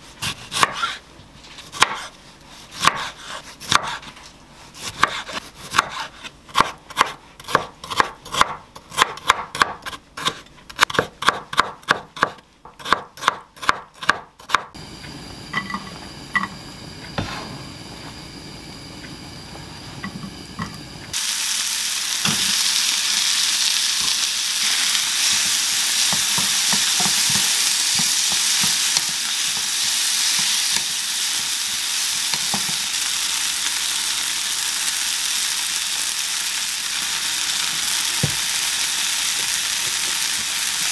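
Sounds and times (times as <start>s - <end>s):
knife chopping on wooden board: 0.2s - 1.0s, 1.7s - 2.1s, 2.8s - 4.1s, 4.8s - 14.7s
vegetables sizzling in a frying pan: 14.8s - 40.9s.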